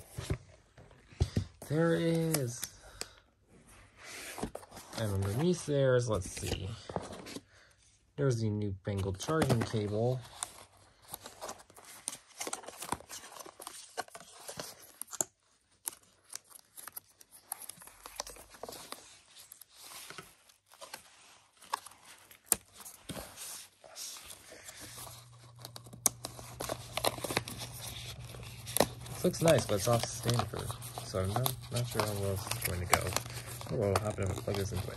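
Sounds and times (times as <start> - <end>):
paper packaging rustling and tearing: 9.0 - 34.9
low steady hum: 23.9 - 34.9.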